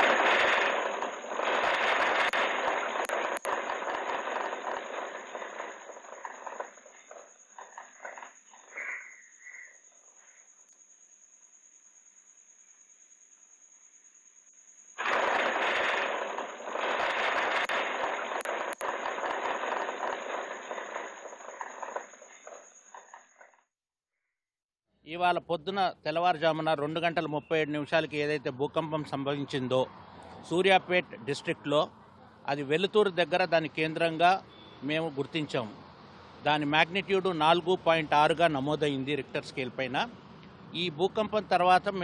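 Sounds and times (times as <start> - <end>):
sharp clicks: 0.0 - 7.2
earthquake rumble and rattling: 0.0 - 8.3, 15.0 - 22.3.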